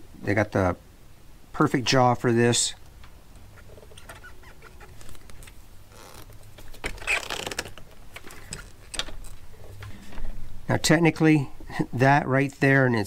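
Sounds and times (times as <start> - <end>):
wire bundle scraping and rustling: 3.4 - 10.2.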